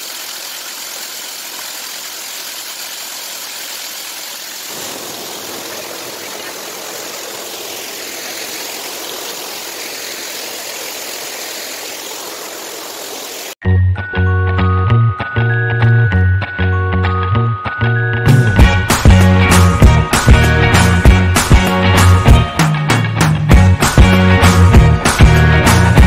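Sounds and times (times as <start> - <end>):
waterfall and stream rushing: 0.0 - 13.6.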